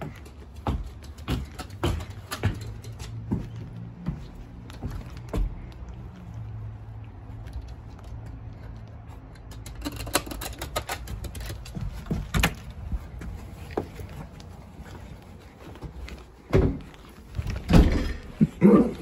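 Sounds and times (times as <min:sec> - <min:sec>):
front door clicks and knocks: 0:09.7 - 0:12.8, 0:16.5 - 0:18.4
door thump: 0:17.7 - 0:18.3.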